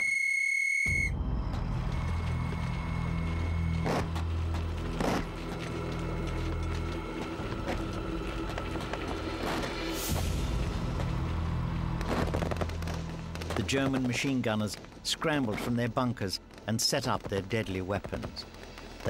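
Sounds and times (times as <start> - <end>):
shrill whistle blast: 0.0 - 1.3.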